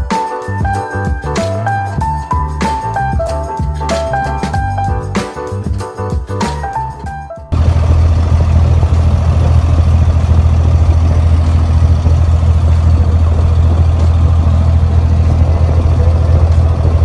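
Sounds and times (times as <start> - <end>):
diesel boat engine droning: 7.6 - 17.0.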